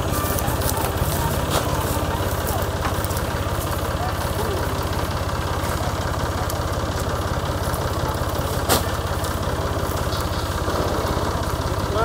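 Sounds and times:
tractor engine idling: 0:00.0 - 0:12.0.

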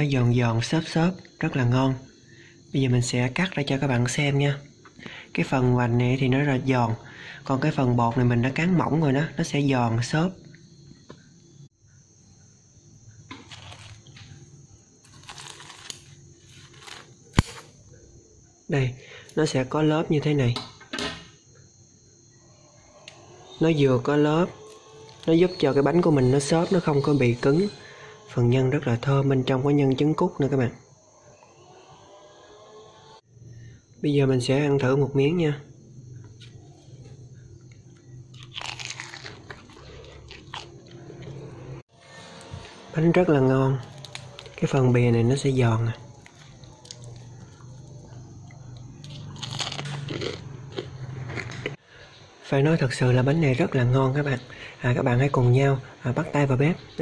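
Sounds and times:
biting into crisp pastry: 0:13.4 - 0:14.2, 0:15.0 - 0:17.7, 0:38.3 - 0:41.5, 0:43.8 - 0:44.6, 0:46.2 - 0:51.8
scissors crunching fried crust: 0:15.1 - 0:17.6, 0:38.4 - 0:40.7, 0:49.0 - 0:51.6
chewing with sharp crackles: 0:37.6 - 0:41.5, 0:43.8 - 0:44.6, 0:46.1 - 0:51.8.

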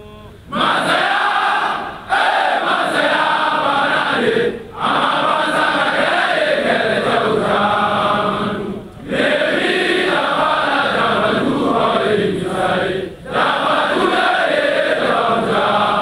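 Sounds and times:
group of voices chanting: 0:00.5 - 0:16.0.

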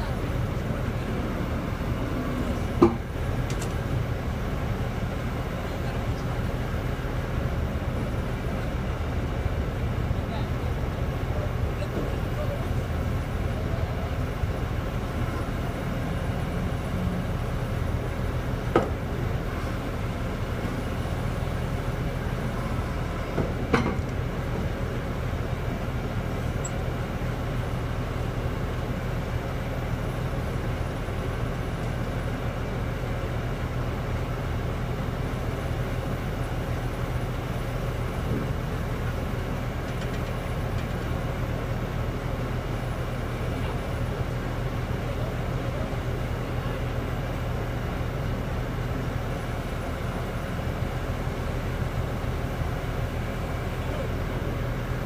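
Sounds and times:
drilling rig engine droning: 0:00.0 - 0:55.0.

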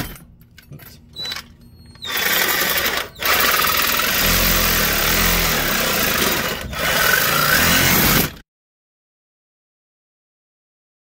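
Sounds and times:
reciprocating saw cutting metal pipe: 0:02.0 - 0:08.4.

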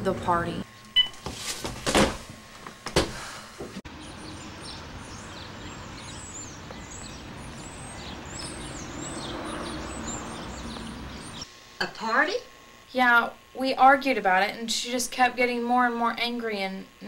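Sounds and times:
outdoor background hiss: 0:00.0 - 0:17.0
small birds chirping: 0:03.9 - 0:11.5.

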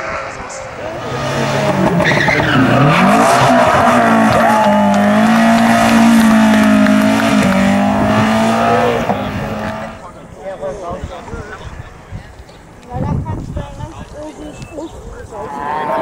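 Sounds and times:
rally car engine revving: 0:00.0 - 0:10.0.

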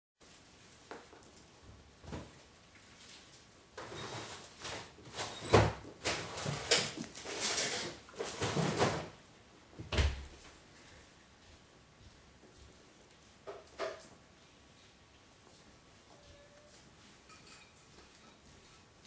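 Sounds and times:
ice cube scraping on wooden floor: 0:06.1 - 0:09.0.

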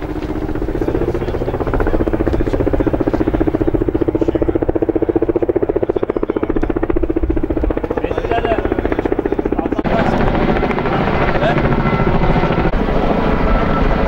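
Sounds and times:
helicopter rotor chopping: 0:00.0 - 0:14.0.

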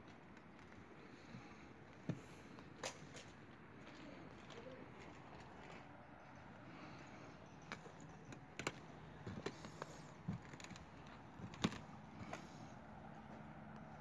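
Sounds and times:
footsteps on roof tiles: 0:07.7 - 0:13.4.

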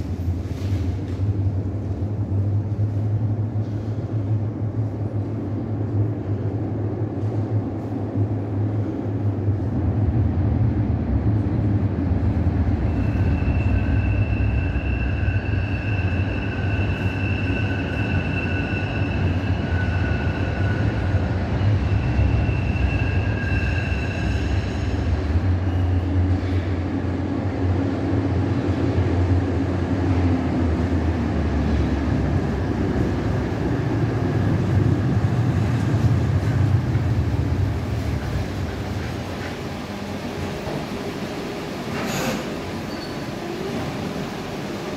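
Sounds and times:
low station rumble: 0:00.0 - 0:44.9
tram arriving: 0:00.0 - 0:44.9
tram wheels squealing: 0:12.5 - 0:26.9, 0:41.9 - 0:44.2.

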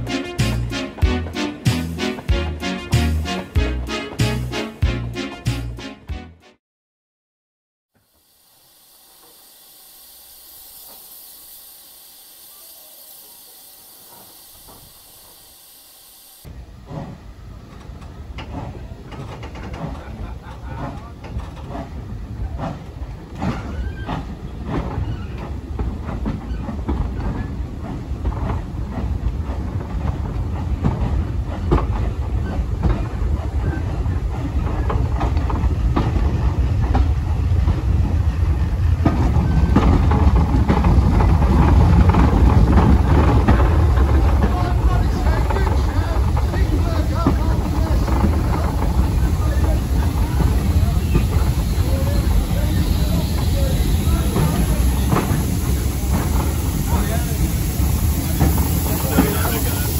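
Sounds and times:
steam locomotive hissing: 0:00.0 - 0:04.8, 0:08.0 - 0:59.9
train rumbling: 0:00.0 - 0:06.1, 0:08.2 - 0:59.9
rail clatter and knocks: 0:39.0 - 0:50.6.

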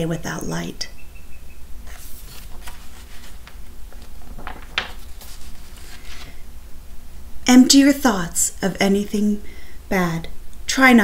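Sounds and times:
book pages turning: 0:01.9 - 0:06.4.

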